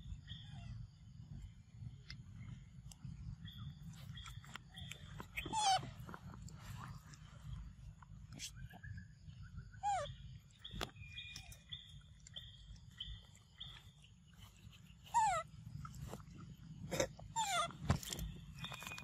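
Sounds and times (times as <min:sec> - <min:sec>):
monkeys squealing: 0:05.3 - 0:06.0, 0:09.8 - 0:10.2, 0:15.1 - 0:15.5, 0:17.3 - 0:17.8.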